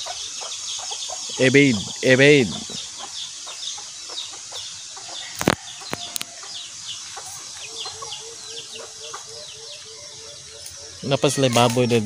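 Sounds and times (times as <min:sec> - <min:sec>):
chicks peeping: 0:00.0 - 0:12.0
hen clucking: 0:00.0 - 0:12.0.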